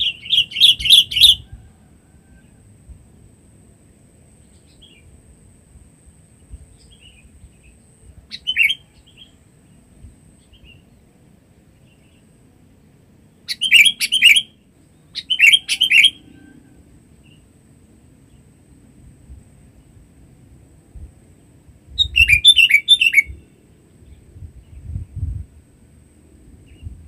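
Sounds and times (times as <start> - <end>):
bird calling loud notes: 0.0 - 1.6, 15.2 - 16.5
faint bird chirps: 0.0 - 2.7, 4.3 - 5.2, 6.4 - 11.1, 13.3 - 17.4, 21.9 - 25.4.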